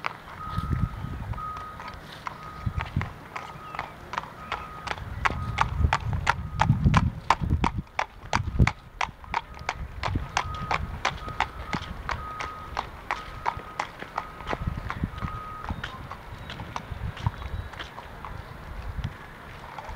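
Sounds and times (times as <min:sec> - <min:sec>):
horse hooves clip-clopping on asphalt: 0:00.0 - 0:19.9
faint high beep: 0:00.4 - 0:06.8, 0:09.3 - 0:16.9.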